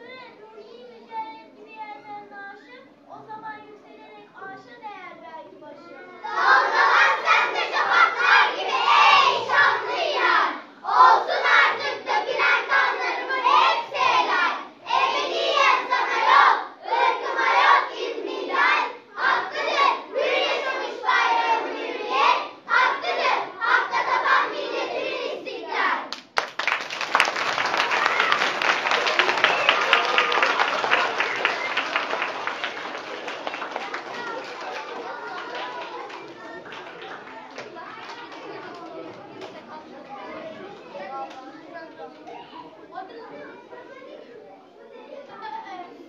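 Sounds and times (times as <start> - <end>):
audience applause: 26.4 - 39.0.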